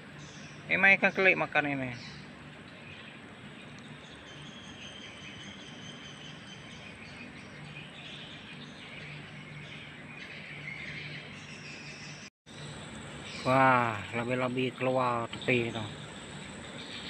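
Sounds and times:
birds chirping: 0.0 - 17.0
insects chirping: 0.0 - 17.0
steady background hiss: 12.5 - 17.0.

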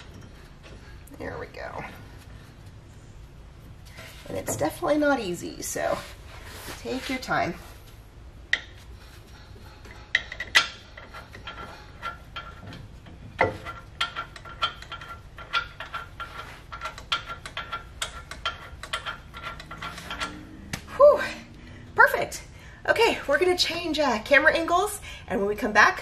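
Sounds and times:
metal knocks: 8.5 - 21.0.

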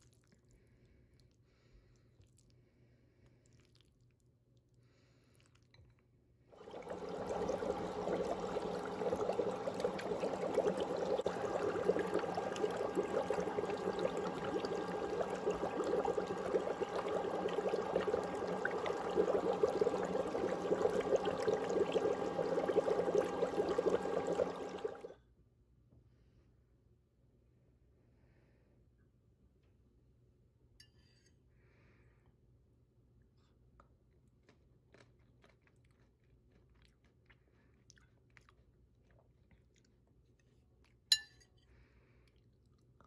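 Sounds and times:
trickling running water: 6.6 - 25.1.

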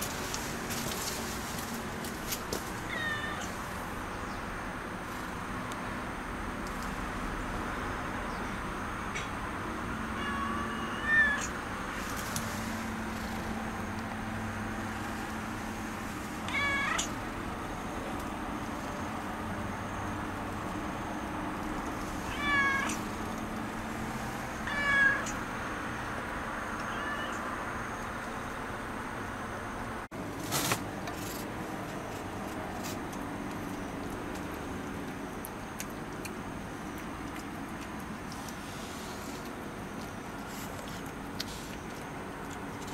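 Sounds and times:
steady background noise: 0.0 - 42.9
cat meowing: 2.9 - 3.5, 10.2 - 11.5, 16.5 - 17.2, 22.2 - 23.0, 24.6 - 25.4, 26.8 - 27.5.

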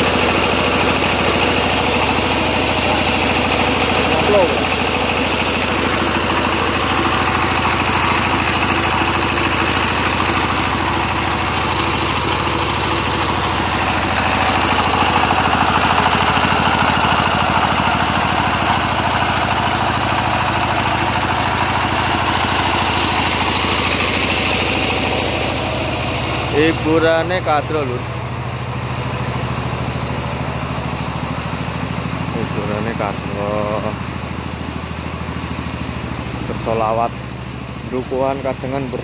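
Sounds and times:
generator engine humming: 0.0 - 39.0.

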